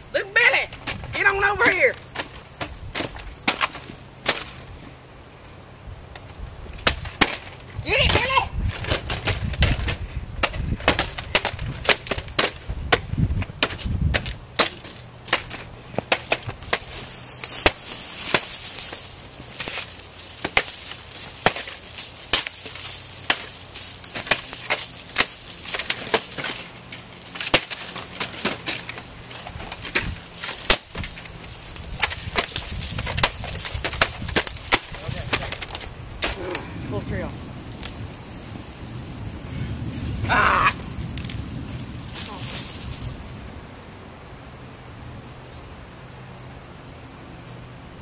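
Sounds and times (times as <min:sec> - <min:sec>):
plastic and metal parts smashed: 0:01.7 - 0:04.7, 0:06.8 - 0:13.0, 0:19.6 - 0:36.5.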